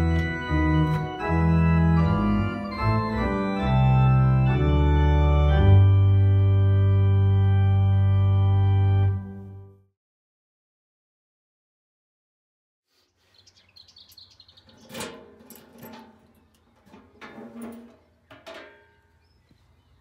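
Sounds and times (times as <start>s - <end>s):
electronic organ playing chords: 0.0s - 9.9s.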